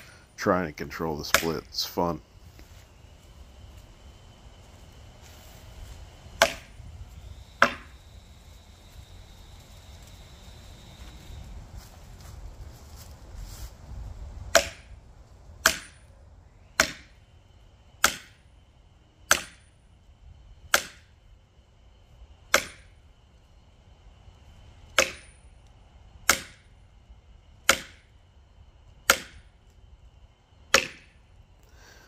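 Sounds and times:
sledgehammer striking steel axe: 0:06.4 - 0:06.7, 0:07.6 - 0:07.9, 0:14.5 - 0:14.9, 0:15.6 - 0:16.1, 0:16.8 - 0:17.1, 0:18.0 - 0:18.4, 0:19.3 - 0:19.6, 0:20.7 - 0:21.1, 0:22.5 - 0:22.9, 0:25.0 - 0:25.4, 0:26.3 - 0:26.7, 0:27.7 - 0:28.0, 0:29.0 - 0:29.4, 0:30.7 - 0:31.1.

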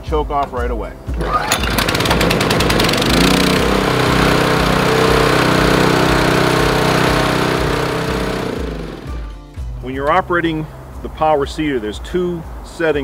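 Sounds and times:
small engine running steadily: 0:01.1 - 0:09.4.

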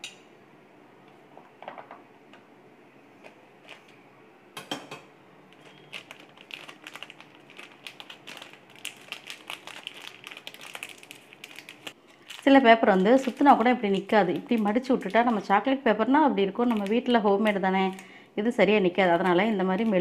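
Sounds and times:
plastic sheet crinkling: 0:05.6 - 0:15.7, 0:16.5 - 0:18.1, 0:18.7 - 0:20.0.

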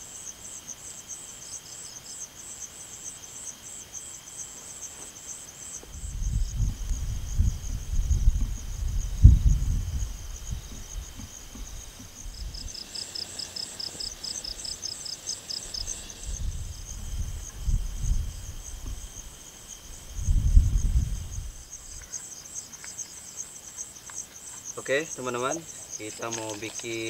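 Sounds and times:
insects chirping trills: 0:00.0 - 0:27.0
low rumbles on microphone: 0:05.9 - 0:12.8, 0:15.8 - 0:22.0.

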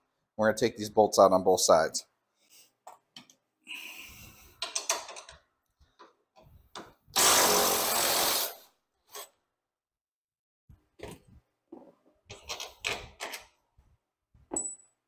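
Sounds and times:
power tool running: 0:07.2 - 0:08.6.

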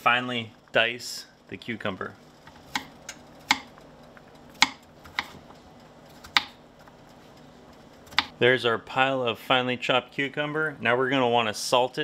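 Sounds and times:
knife striking cutting board: 0:04.6 - 0:05.4.

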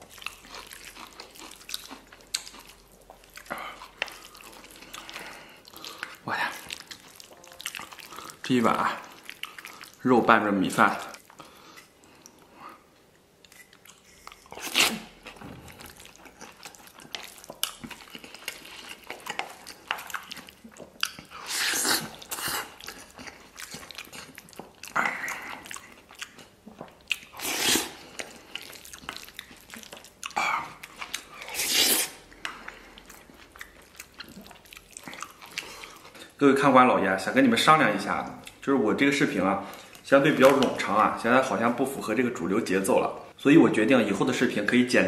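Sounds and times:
wet chewing: 0:00.0 - 0:10.0, 0:13.4 - 0:36.4
slurping: 0:13.5 - 0:26.4, 0:27.1 - 0:33.4.

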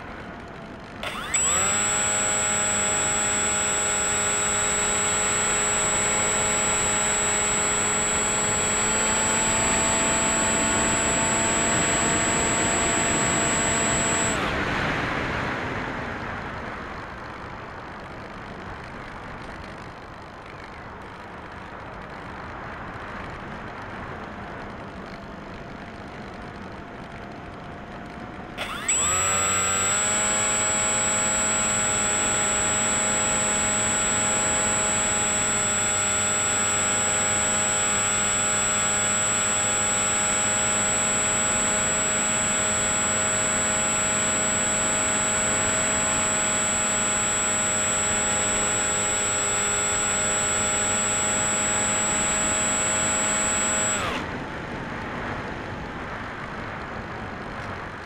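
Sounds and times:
electric motor whine: 0:00.9 - 0:14.9, 0:28.6 - 0:54.4.

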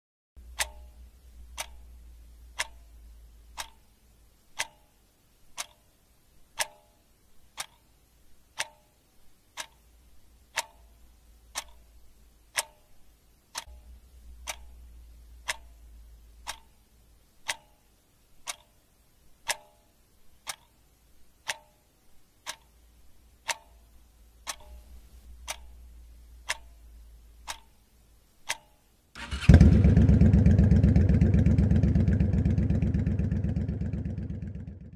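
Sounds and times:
faint low rumble: 0:00.4 - 0:04.4, 0:09.9 - 0:17.5, 0:22.1 - 0:28.2, 0:29.2 - 0:34.9
steady ticking: 0:00.4 - 0:34.9.

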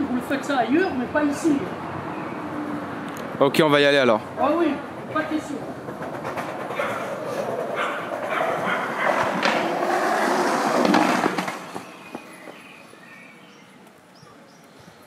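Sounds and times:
skateboard wheels rolling on pavement: 0:00.0 - 0:15.0
skateboard clicks: 0:05.8 - 0:12.6.

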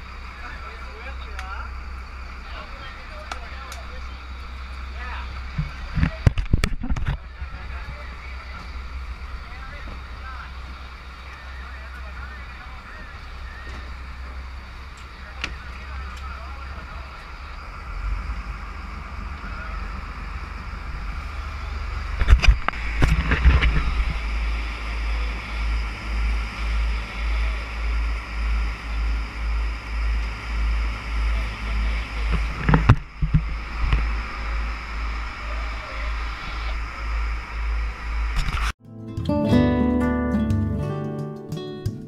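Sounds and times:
boat engine drone: 0:00.0 - 0:38.8
deep pulsing rumble: 0:00.0 - 0:38.8
rushing water: 0:07.2 - 0:38.4.

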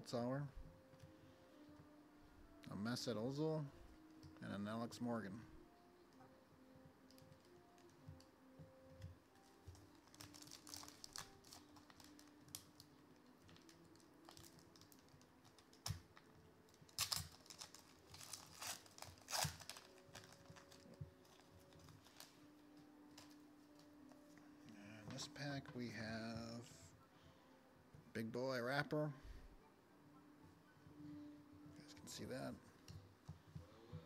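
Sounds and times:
foil wrapper tearing and crinkling: 0:09.8 - 0:12.9, 0:13.5 - 0:16.0, 0:16.8 - 0:22.3.

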